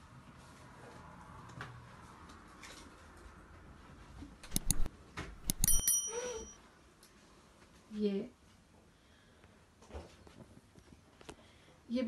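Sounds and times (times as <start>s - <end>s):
mouse click sound effects: 4.4s - 5.9s.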